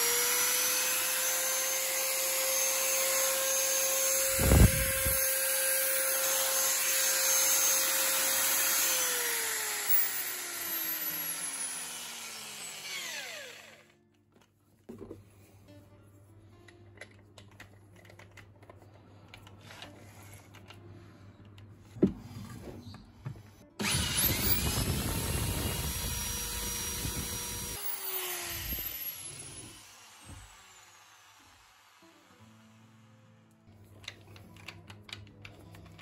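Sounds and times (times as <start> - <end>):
electric drill boring through wood: 0.0 - 14.0, 23.8 - 32.8
small clicks and handling: 16.6 - 21.7, 33.8 - 36.0.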